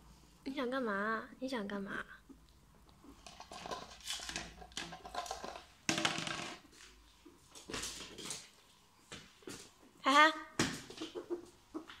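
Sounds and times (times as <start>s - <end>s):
claws scrabbling on hard floor: 3.1s - 9.8s.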